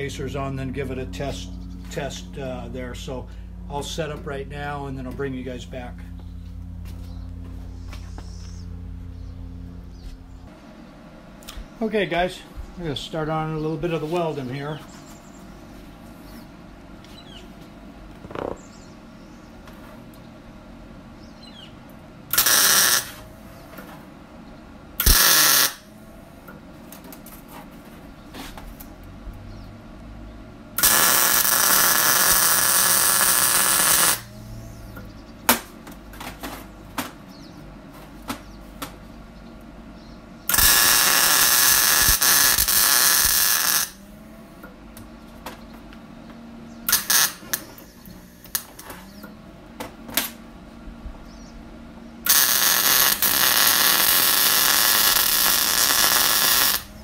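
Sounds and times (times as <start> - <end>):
arc welding metal: 22.3 - 23.3, 25.0 - 25.9, 30.8 - 34.5, 40.5 - 44.1, 46.8 - 49.2, 52.2 - 57.0.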